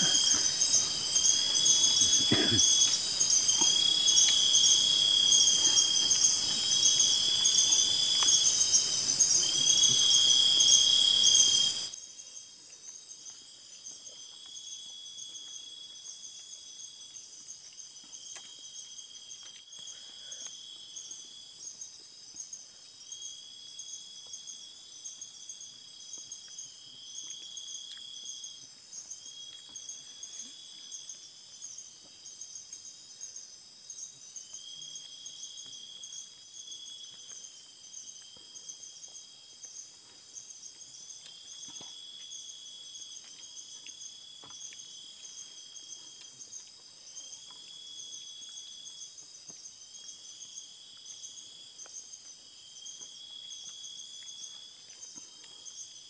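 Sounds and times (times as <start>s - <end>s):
insect chorus shrill ringing: 0.0s - 13.2s
insect drawn-out call: 0.0s - 56.0s.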